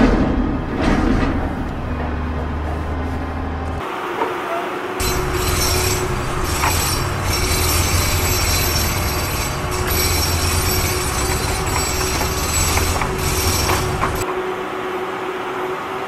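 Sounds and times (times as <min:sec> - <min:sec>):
loud mechanical rumble: 0:00.0 - 0:16.0
high whining tones: 0:05.0 - 0:14.2.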